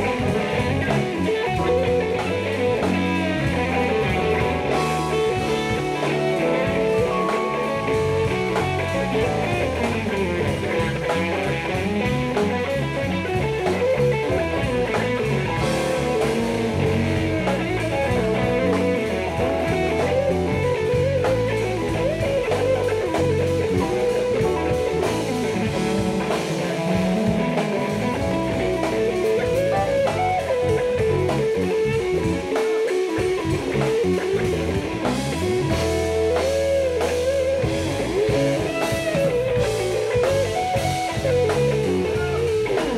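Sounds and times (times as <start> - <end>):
drum kit groove: 0.0 - 42.9
electric guitar lines: 0.0 - 42.9
jazz-funk band playing: 0.0 - 42.9.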